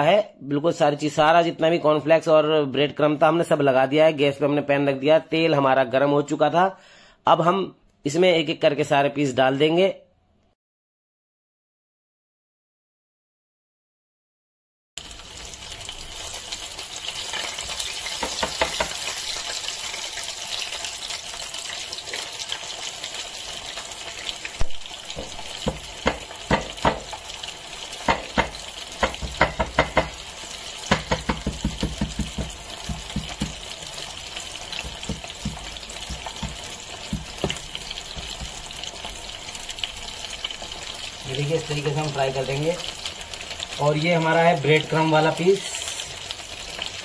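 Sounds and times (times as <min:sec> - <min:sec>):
oil crackles and pops: 0:15.0 - 0:44.0
hot oil sizzling: 0:15.0 - 0:47.0.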